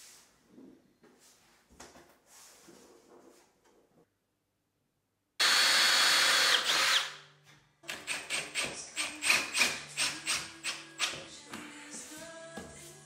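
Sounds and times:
power driver driving screw in pulses: 5.4 - 7.1, 7.9 - 11.2
power driver running: 5.4 - 7.1.

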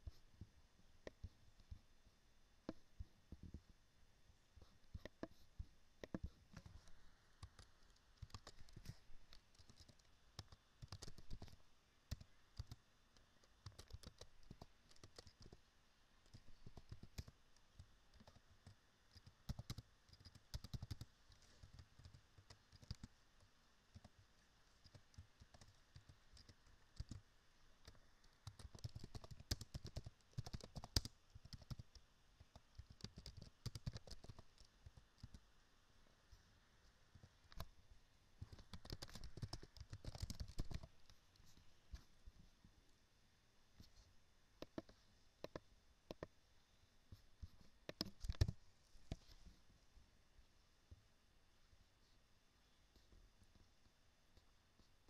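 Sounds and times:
typing on computer keyboard: 7.4 - 12.8, 13.5 - 15.6, 16.3 - 23.1, 24.8 - 27.2, 27.8 - 35.4, 38.4 - 40.9, 47.9 - 48.6.

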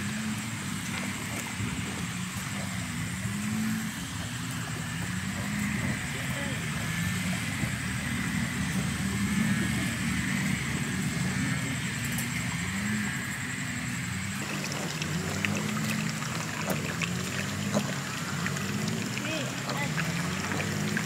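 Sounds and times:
low wavering hum: 0.0 - 21.0
water trickling: 14.1 - 21.0.

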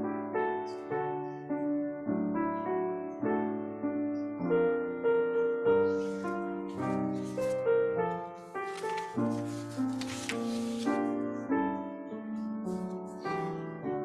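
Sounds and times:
piano playing slow piece: 0.0 - 14.0.

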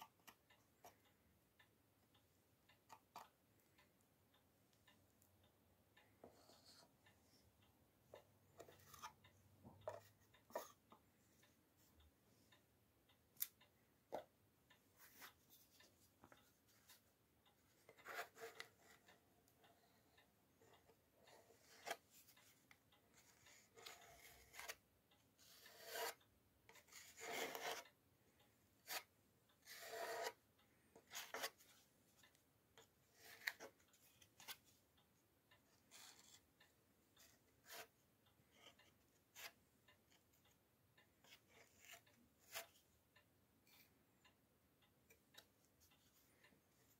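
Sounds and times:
putty knife scraping: 23.5 - 24.8, 25.4 - 27.8, 28.8 - 30.4, 31.0 - 31.6.

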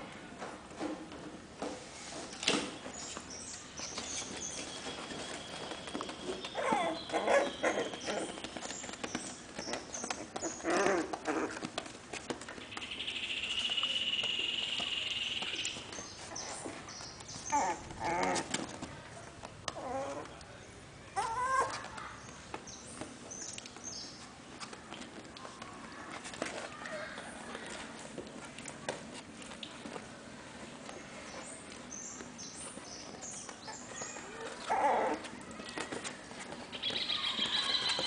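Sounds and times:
puppies whimpering and squeaking: 3.8 - 12.5, 15.8 - 18.6, 21.2 - 22.0, 33.6 - 38.0.

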